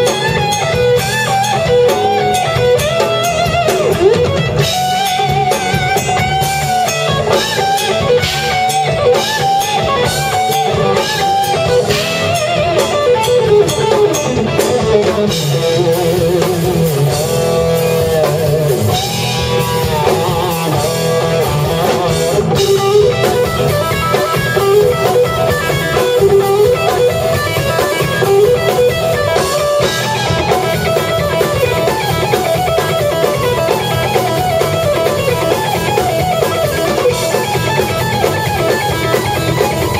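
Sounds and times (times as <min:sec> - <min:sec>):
bass guitar: 0:00.0 - 0:39.9
drum kit: 0:00.0 - 0:39.9
electric guitar lead: 0:00.0 - 0:39.9.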